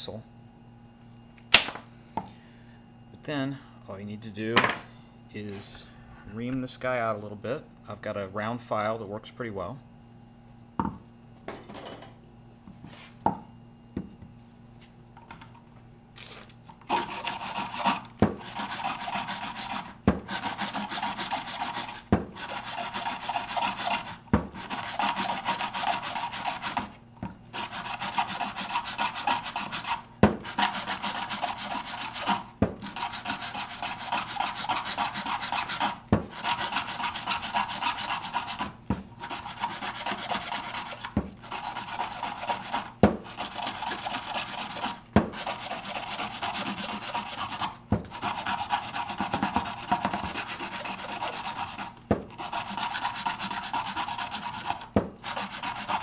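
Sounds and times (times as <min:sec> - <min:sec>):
round file rasping plastic: 0:16.9 - 0:56.0.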